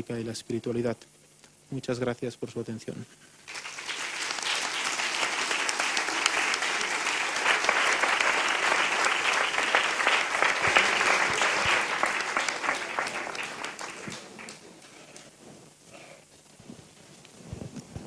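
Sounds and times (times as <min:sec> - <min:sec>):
audience applauding: 0:03.5 - 0:15.0.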